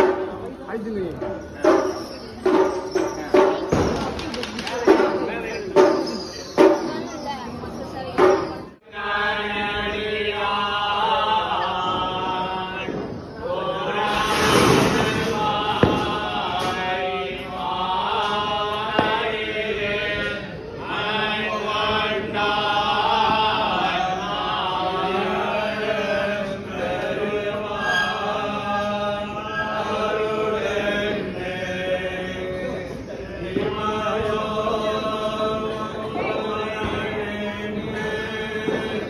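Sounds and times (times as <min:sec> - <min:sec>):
men chanting in unison: 0:08.8 - 0:39.0.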